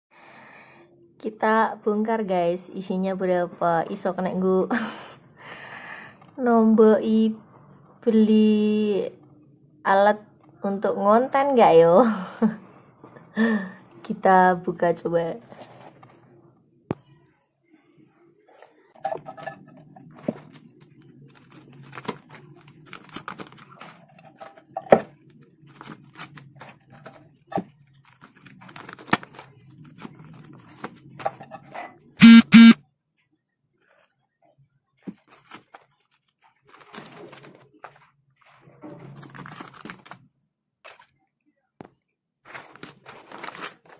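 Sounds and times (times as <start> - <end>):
paper banknotes rustling: 20.4 - 24.2, 35.2 - 38.6, 42.4 - 43.9
loud horn honks: 32.2 - 32.8.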